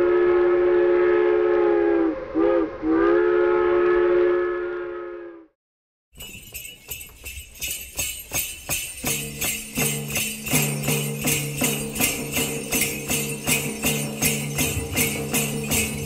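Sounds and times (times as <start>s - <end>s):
jingling sleigh bells: 6.2s - 16.0s.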